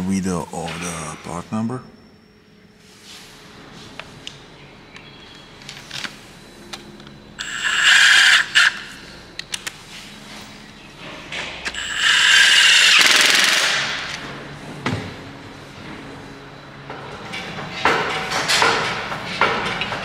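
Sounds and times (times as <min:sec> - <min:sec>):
power tool driving bolts: 0:07.4 - 0:09.0, 0:11.6 - 0:14.2.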